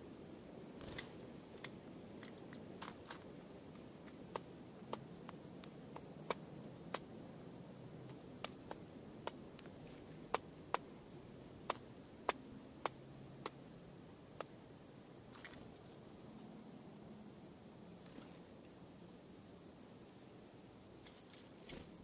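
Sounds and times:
faint high bird chirps: 9.8 - 10.2, 21.0 - 21.4.

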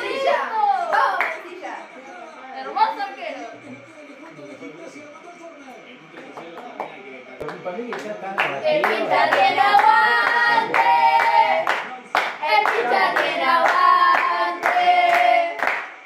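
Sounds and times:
football fans chanting: 0.0 - 1.3, 8.4 - 15.8
rhythmic clapping: 0.0 - 1.7, 6.1 - 16.0.

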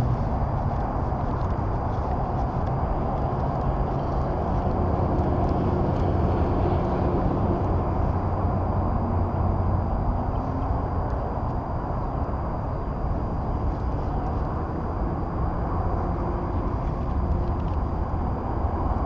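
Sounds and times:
faint high-pitched whine: 0.0 - 19.0
low outdoor rumble: 0.0 - 19.0.

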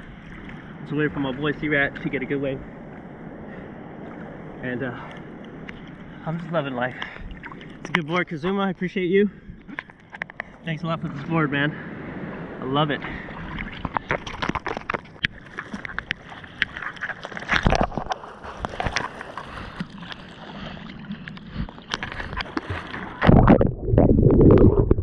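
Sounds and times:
rushing water: 0.0 - 25.0
water splashing and lapping: 0.0 - 25.0
wind on microphone: 21.4 - 25.0.

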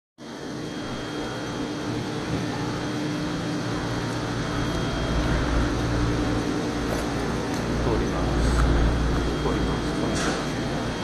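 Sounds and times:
steady mechanical drone: 0.2 - 11.0.

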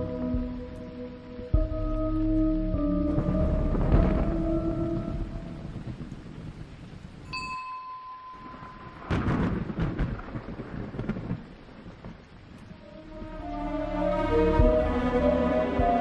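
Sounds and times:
thunder rumbling: 0.0 - 7.3, 8.4 - 16.0
loud thunderclap: 3.2 - 7.3, 8.4 - 12.2
bell-like chime: 7.3 - 9.1.

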